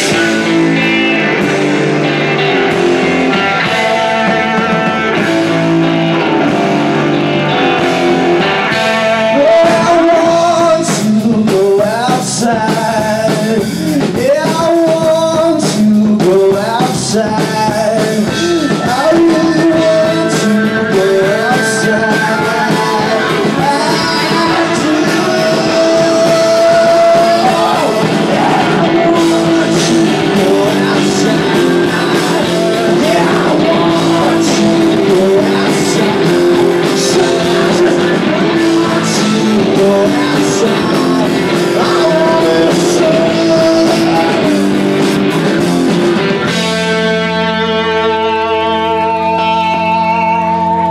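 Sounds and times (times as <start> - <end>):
man singing: 0.0 - 1.4, 2.1 - 50.9
rock band playing: 0.0 - 50.9.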